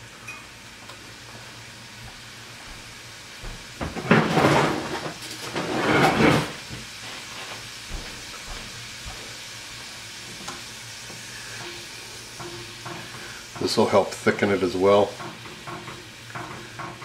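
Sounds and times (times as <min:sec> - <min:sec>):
loud rustling or scraping: 0:04.0 - 0:07.8
faint butter sizzle: 0:05.1 - 0:17.0.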